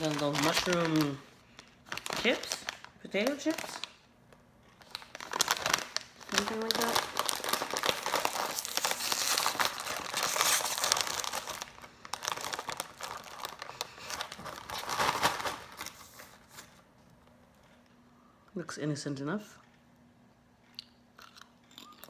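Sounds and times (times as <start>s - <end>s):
chip bag crinkling and tearing: 0.0s - 4.0s, 4.6s - 16.8s.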